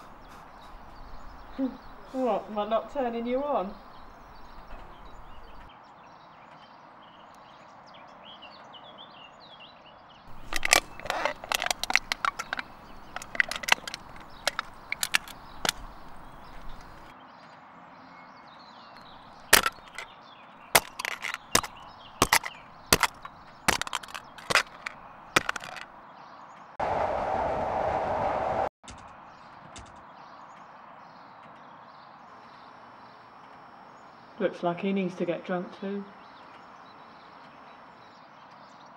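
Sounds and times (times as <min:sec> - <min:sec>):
birds chirping faintly: 0:00.0 - 0:05.7, 0:10.3 - 0:17.1, 0:19.0 - 0:20.1, 0:20.7 - 0:25.9
sharp irregular cracks: 0:02.9 - 0:05.7, 0:10.3 - 0:17.1, 0:19.0 - 0:20.1, 0:20.8 - 0:25.9
moving train rushing: 0:26.8 - 0:28.7.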